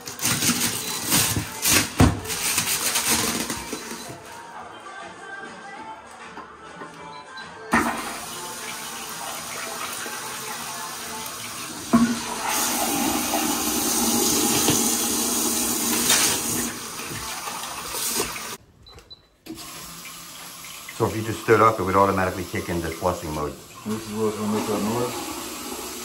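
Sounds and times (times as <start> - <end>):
water rushing into toilet bowl: 7.8 - 18.6, 19.6 - 26.0.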